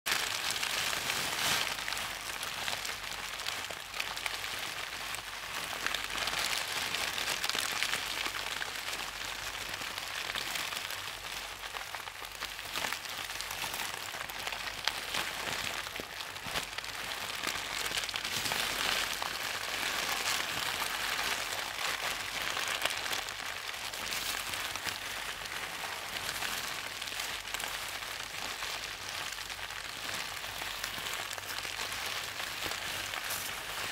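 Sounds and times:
faint crackles: 0.1 - 33.9.

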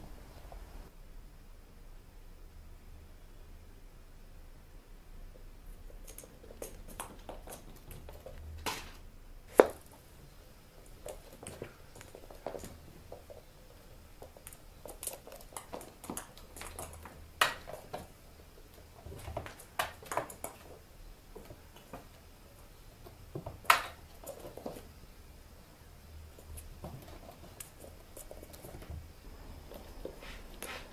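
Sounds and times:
toys tapping and clattering on carpet: 5.9 - 8.9, 9.5 - 10.0, 10.8 - 20.8.

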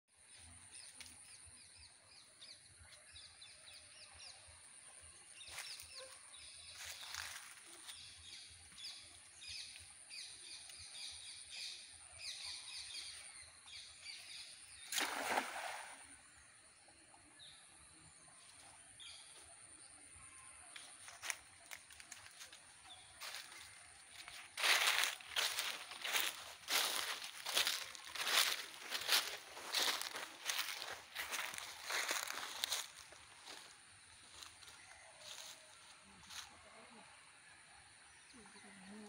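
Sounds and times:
net splashing into water: 14.8 - 16.1
birds chirping and calling: 23.2 - 33.6.

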